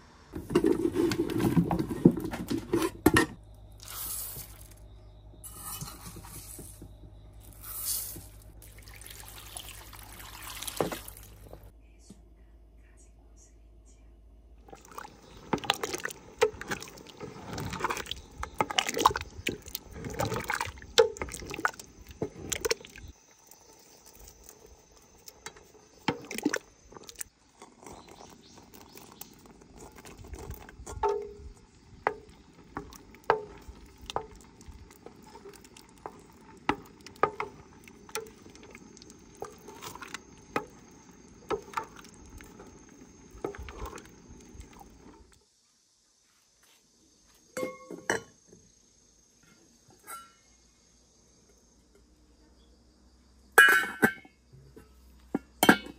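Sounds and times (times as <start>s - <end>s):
spoon mashing food in a pot: 25.2s - 45.0s.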